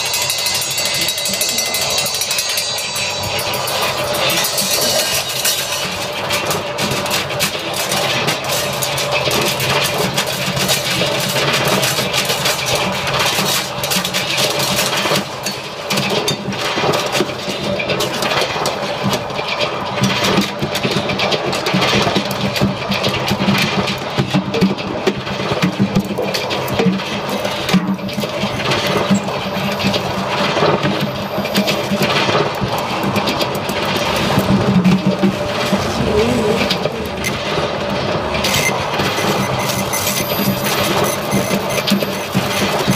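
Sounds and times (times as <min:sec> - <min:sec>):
drum kit rapid clattering hits: 0:00.0 - 0:42.9
harsh electronic noise: 0:27.2 - 0:42.9.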